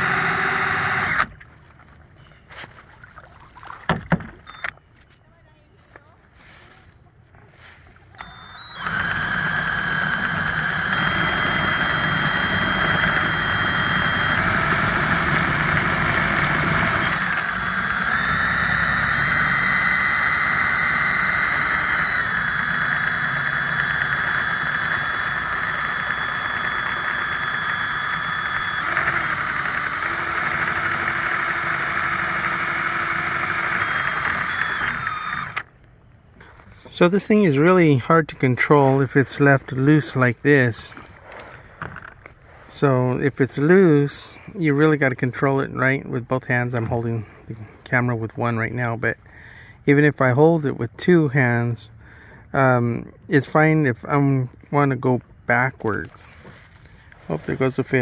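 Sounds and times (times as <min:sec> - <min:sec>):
drill motor whine: 0:00.0 - 0:01.3, 0:08.2 - 0:35.7.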